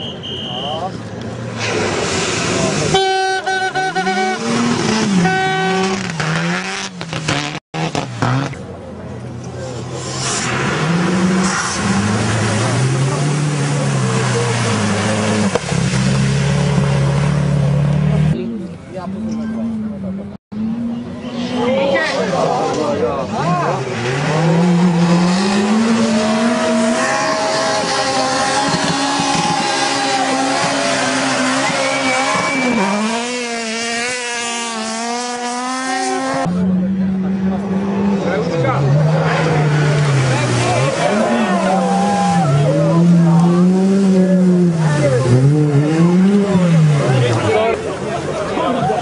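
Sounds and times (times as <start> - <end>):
car engine revving hard: 1.4 - 8.7, 9.7 - 18.4, 23.3 - 48.0
water splashing spray: 1.5 - 3.0.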